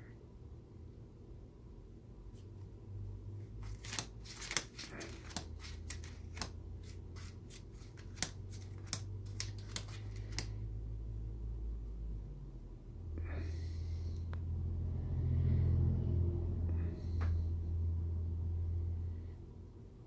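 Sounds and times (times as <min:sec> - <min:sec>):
low steady hum: 0:00.0 - 0:20.0
paper crackling and rustling: 0:03.6 - 0:10.6.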